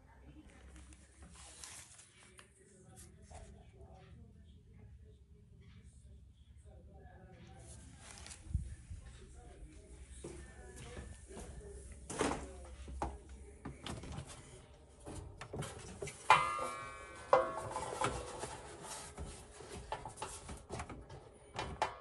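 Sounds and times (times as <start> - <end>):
sharp metallic clanks: 16.2 - 18.7.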